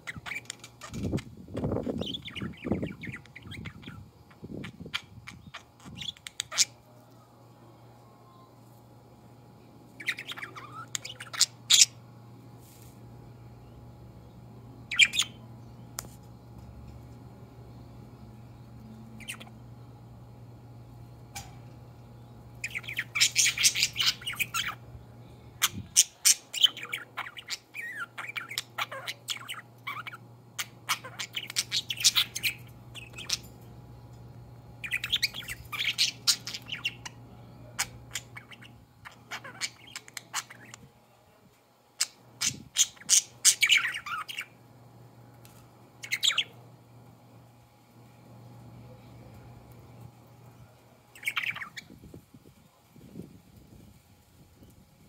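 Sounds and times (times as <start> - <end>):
budgerigars chattering: 10.0 - 12.0, 22.6 - 24.8, 25.6 - 33.4, 34.8 - 37.2, 37.8 - 40.8, 42.0 - 44.5.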